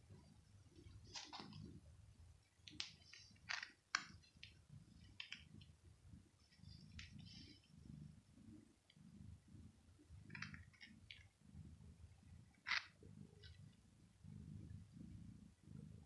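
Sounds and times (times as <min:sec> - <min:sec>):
faint low rumble: 0:04.1 - 0:16.0.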